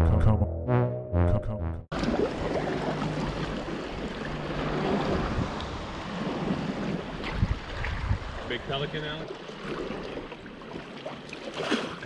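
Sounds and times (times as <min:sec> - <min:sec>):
water lapping around a kayak: 0:01.9 - 0:12.0
wind noise on microphone: 0:04.6 - 0:08.5.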